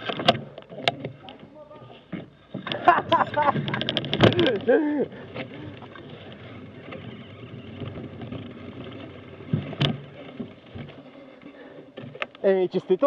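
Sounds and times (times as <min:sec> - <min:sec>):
bike rattling: 0:00.0 - 0:13.0
bike tyres rumbling on dirt: 0:02.8 - 0:13.0.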